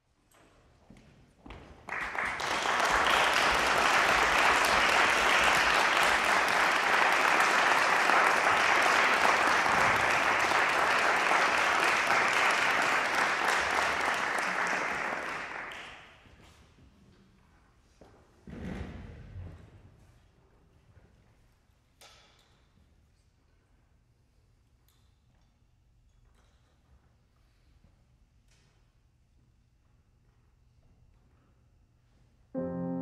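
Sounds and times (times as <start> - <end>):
audience applauding: 1.8 - 16.0.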